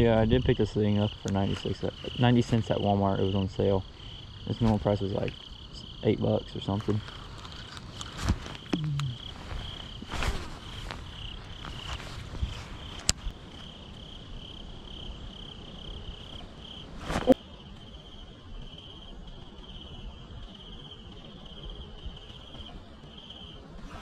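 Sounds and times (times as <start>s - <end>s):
crickets chirping: 0.0s - 24.0s.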